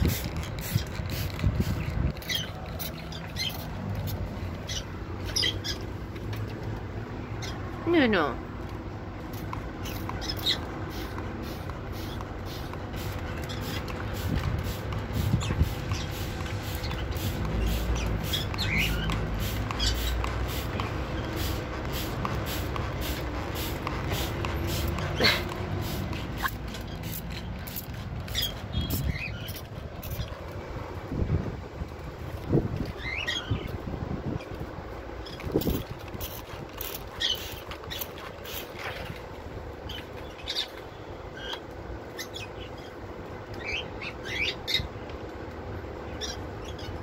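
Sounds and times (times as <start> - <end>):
parakeet calls: 4.6 - 5.9, 9.8 - 11.1, 16.8 - 20.2, 43.6 - 44.9, 46.1 - 47.0.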